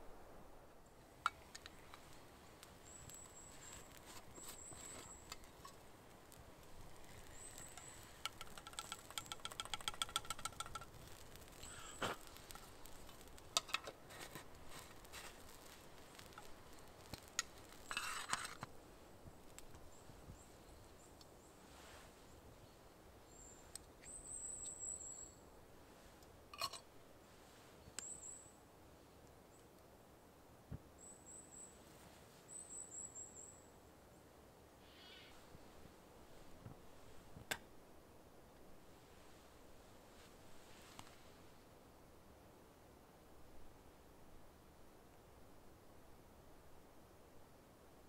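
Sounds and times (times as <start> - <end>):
small birds high thin calls: 6.9 - 13.3, 34.8 - 35.4
quick run of clicks: 8.2 - 10.9.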